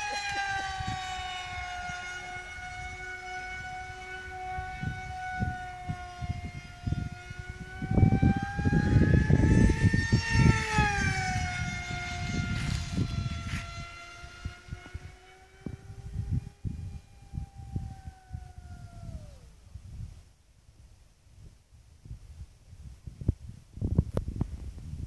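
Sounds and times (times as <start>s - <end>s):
model plane motor whining: 0.0s - 19.7s
wind buffeting microphone: 0.0s - 25.0s.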